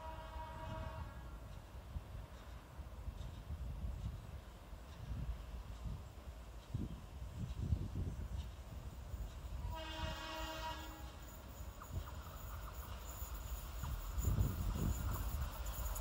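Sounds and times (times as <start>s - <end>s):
train horn blast: 0.0s - 1.4s, 9.6s - 11.4s
train rumbling: 0.0s - 16.0s.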